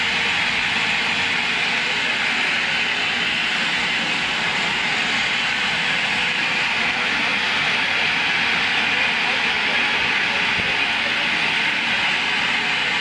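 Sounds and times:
gas jets hissing: 0:00.0 - 0:13.0.

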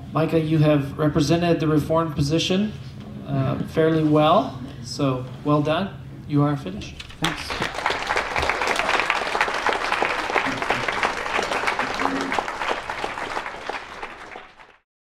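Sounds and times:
audience applauding: 0:07.0 - 0:14.8.

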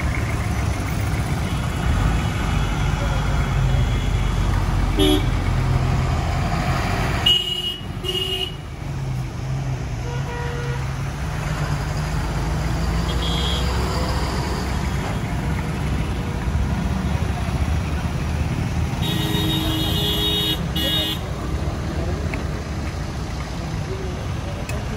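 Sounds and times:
diesel truck engines rumbling: 0:00.0 - 0:24.9
truck horn toots: 0:03.7 - 0:05.4, 0:19.0 - 0:21.3.

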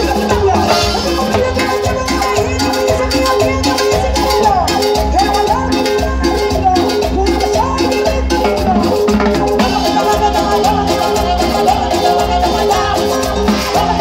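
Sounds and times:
live cumbia band: 0:00.0 - 0:14.0
horn section: 0:00.5 - 0:02.1.

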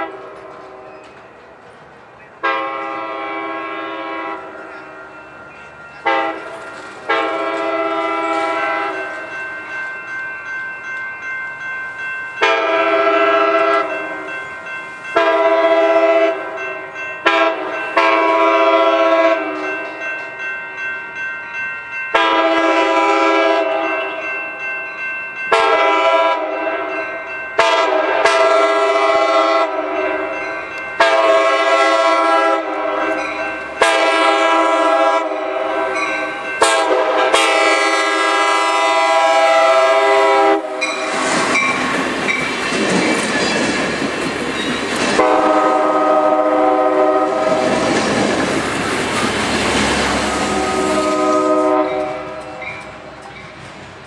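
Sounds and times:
train air horn blasts: 0:00.0 - 0:00.9, 0:02.4 - 0:05.0, 0:06.0 - 0:09.1, 0:12.4 - 0:14.2, 0:15.2 - 0:16.6, 0:17.2 - 0:19.8, 0:22.1 - 0:24.2, 0:25.5 - 0:27.0, 0:27.6 - 0:30.3, 0:31.0 - 0:41.5, 0:45.1 - 0:47.8, 0:50.2 - 0:53.1
train running on tracks: 0:00.0 - 0:54.0.

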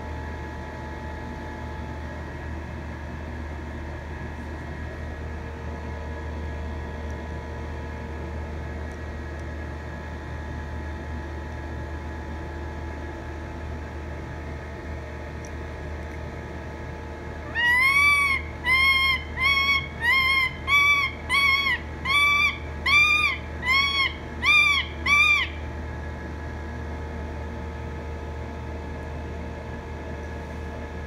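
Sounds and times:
steady low hum: 0:00.0 - 0:31.0
parrot squawking: 0:17.4 - 0:25.7.

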